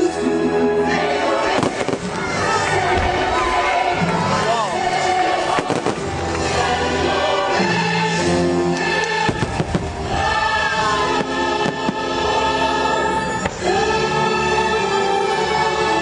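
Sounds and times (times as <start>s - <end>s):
choir and orchestra music: 0.0s - 16.0s
fireworks bursting: 1.3s - 7.0s, 7.7s - 14.0s.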